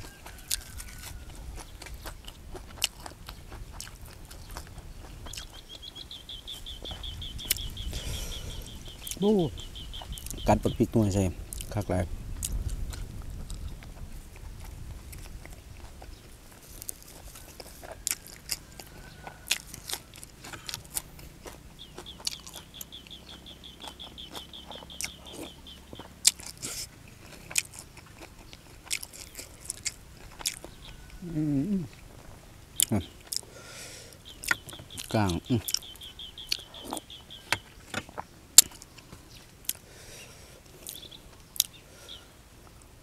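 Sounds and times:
close chewing and crunching: 0.0s - 43.0s
wet mouth clicks: 36.5s - 37.0s.

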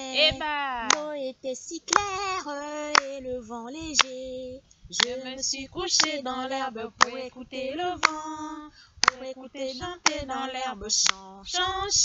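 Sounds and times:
woman singing a cappella: 0.0s - 12.0s
hand clapping: 0.8s - 1.1s, 1.9s - 2.2s, 2.9s - 3.1s, 6.0s - 6.2s, 7.0s - 7.2s, 8.0s - 8.2s, 9.0s - 9.2s, 9.8s - 10.4s, 11.0s - 11.3s.

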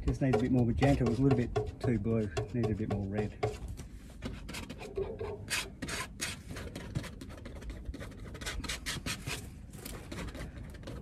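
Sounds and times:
palette knife scraping canvas: 4.2s - 11.0s.

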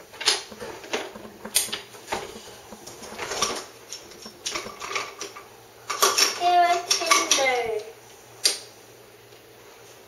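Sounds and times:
toy trains clacking together: 4.5s - 7.8s.

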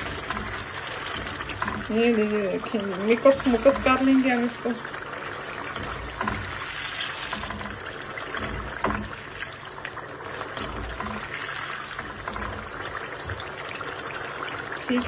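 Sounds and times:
spatula scraping and knocking pan: 0.0s - 4.6s, 5.2s - 13.7s
curry bubbling and sizzling: 0.0s - 15.0s.

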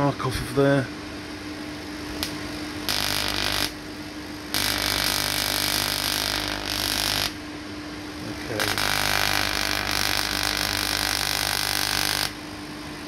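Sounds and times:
steady hum: 0.0s - 13.0s
tesla coil arc hissing: 2.1s - 12.4s.

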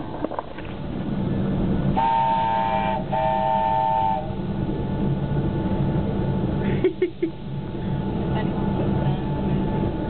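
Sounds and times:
train running rumble: 0.0s - 10.0s
train whistle blasts: 2.0s - 4.3s.

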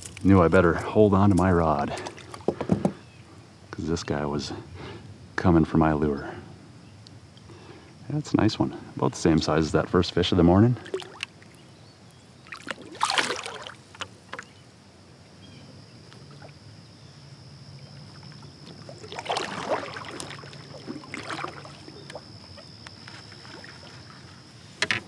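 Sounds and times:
water splashing beside kayak: 10.6s - 11.7s, 12.3s - 14.6s, 17.7s - 25.0s
kayak paddle strokes splashing: 10.8s - 11.7s, 12.3s - 14.6s, 17.8s - 25.0s.

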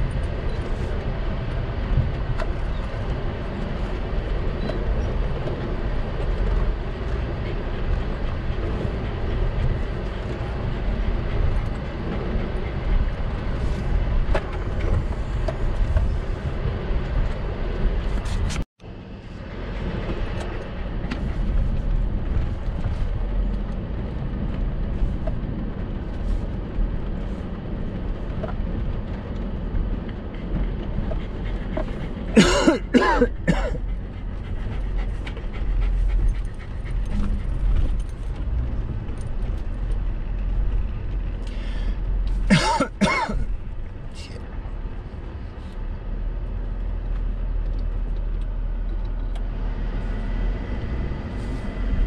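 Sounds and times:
pickup engine rumble: 0.0s - 52.0s.

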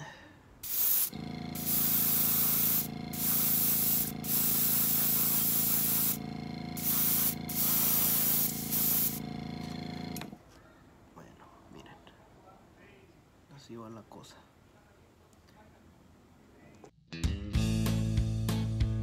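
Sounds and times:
airbrush spraying hiss: 0.6s - 10.2s
air compressor humming: 0.6s - 10.4s.

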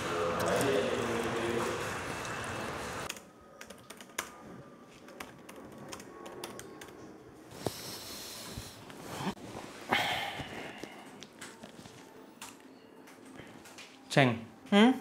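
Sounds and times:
typing on computer keyboard: 3.1s - 4.4s, 5.1s - 7.0s.

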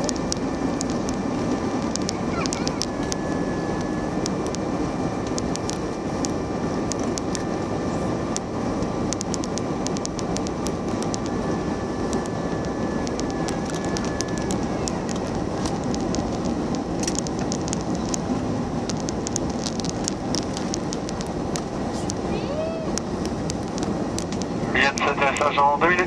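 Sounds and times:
faint steady whine: 0.0s - 26.0s
jet engines and rushing air: 0.0s - 26.0s
small clicks: 1.8s - 3.2s, 9.1s - 11.4s, 12.1s - 22.2s.

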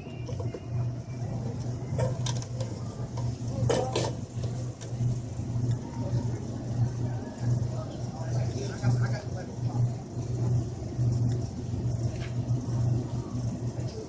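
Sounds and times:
shopping cart wheels rumbling: 0.0s - 10.8s.

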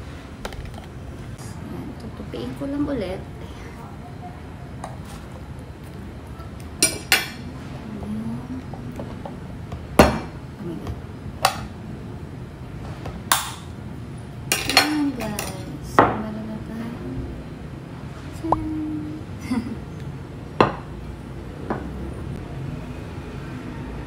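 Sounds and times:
dishes and cutlery clinking: 14.5s - 15.7s.

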